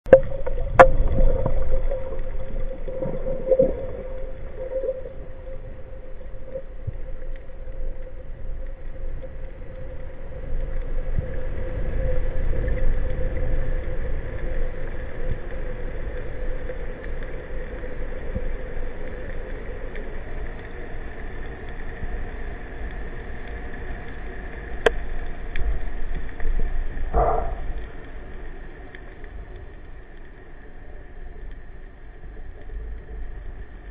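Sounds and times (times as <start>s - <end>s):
low underwater rumble: 0.0s - 33.9s.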